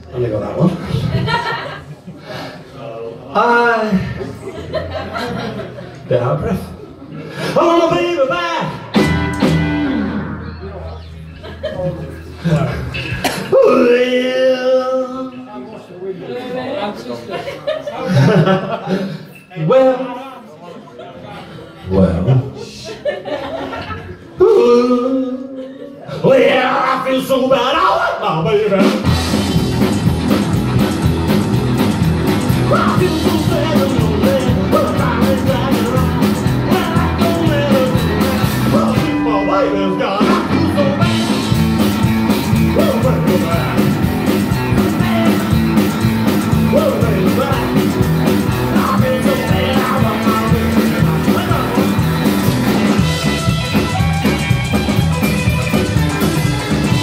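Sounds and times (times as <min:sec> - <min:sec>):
rockabilly band playing live: 0:00.0 - 0:01.9, 0:07.4 - 0:14.8, 0:26.2 - 0:57.0
person singing: 0:32.5 - 0:41.6, 0:42.3 - 0:53.4.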